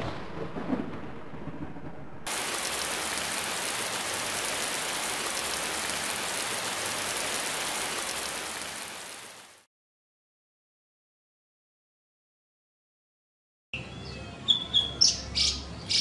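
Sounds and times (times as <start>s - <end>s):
thunder rumble: 0.0s - 8.6s
rain hiss: 2.3s - 9.7s.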